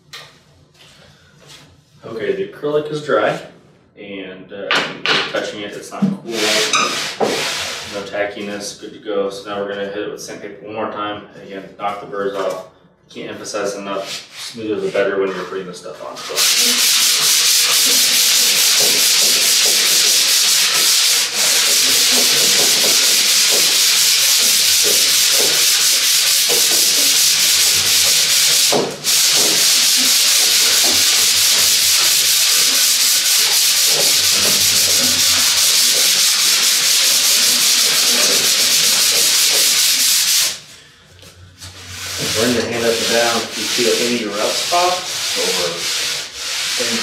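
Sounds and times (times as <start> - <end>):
sandpaper rubbing on wood: 6.3 - 8.0, 14.0 - 40.6, 41.9 - 47.0.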